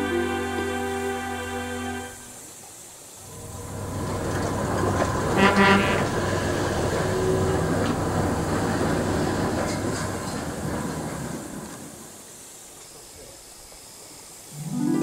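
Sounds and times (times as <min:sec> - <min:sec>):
train whistle toots: 0:00.0 - 0:02.5, 0:05.3 - 0:06.3
goods train rumbling and rattling: 0:02.7 - 0:13.2.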